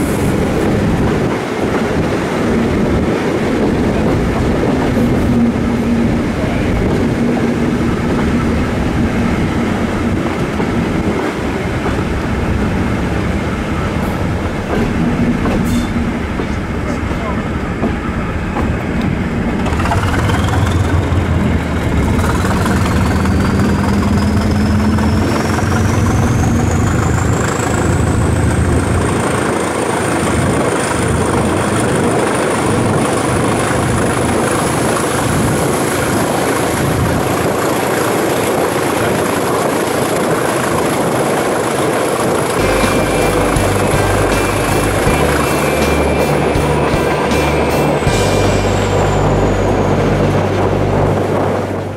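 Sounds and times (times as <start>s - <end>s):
rolling and wind noise: 0.0s - 51.9s
train engine rumble: 0.0s - 51.9s
high whine rising in pitch: 42.5s - 51.9s.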